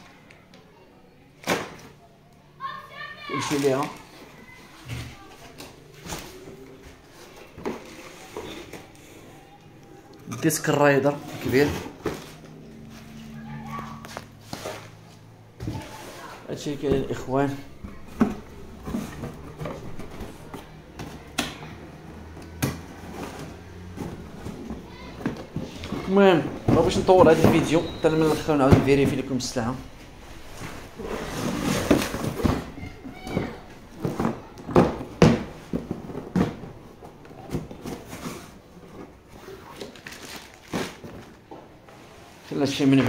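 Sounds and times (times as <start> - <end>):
plastic case being shifted: 10.3 - 13.2, 14.0 - 21.3, 22.2 - 41.6
cardboard boxes knocking: 22.4 - 29.8, 30.4 - 38.5.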